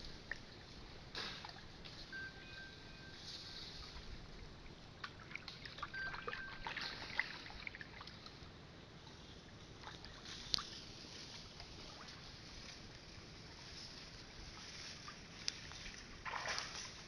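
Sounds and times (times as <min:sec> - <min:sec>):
water splashing and trickling: 0:03.1 - 0:08.5, 0:09.5 - 0:17.0.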